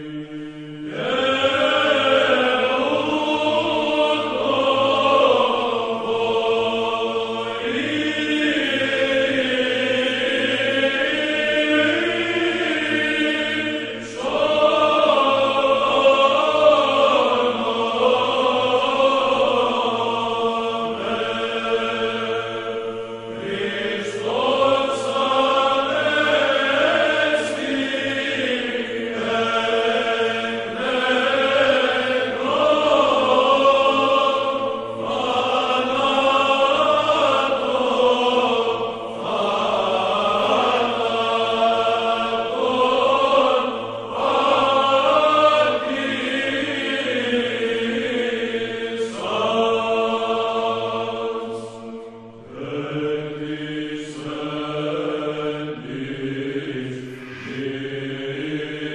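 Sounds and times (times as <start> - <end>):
voices chanting slow melody: 0.0 - 58.9
held low drone note: 56.9 - 58.7.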